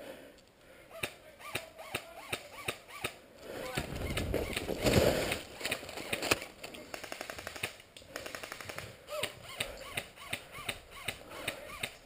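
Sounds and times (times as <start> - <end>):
airsoft gun firing automatic burst: 6.9 - 8.8.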